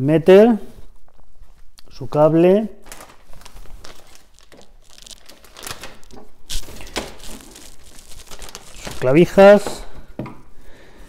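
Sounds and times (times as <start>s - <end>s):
plastic bag crinkling: 2.8s - 9.9s.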